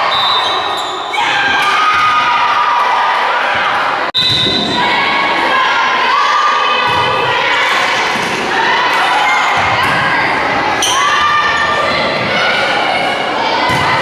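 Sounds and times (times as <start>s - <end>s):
people calling out and cheering: 0.0s - 14.0s
volleyball hits: 6.8s - 10.4s, 13.7s - 14.0s.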